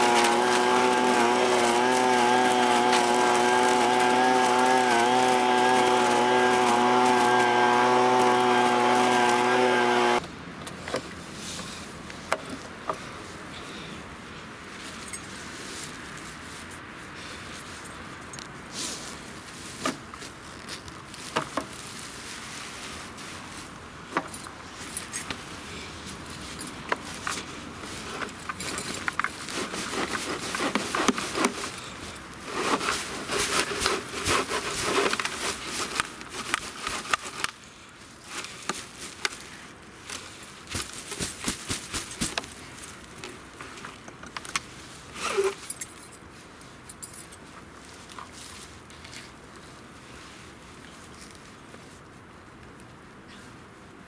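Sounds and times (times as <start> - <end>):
dry leaves rustling and crackling: 0.0 - 10.2, 14.6 - 52.9
fabric rustling: 0.0 - 10.2.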